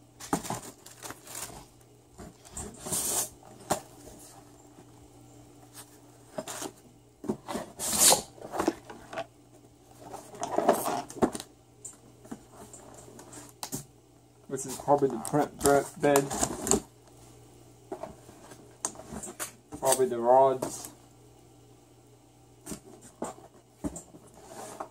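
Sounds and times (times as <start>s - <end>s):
cardboard scraping on table: 2.3s - 3.4s, 24.3s - 24.9s.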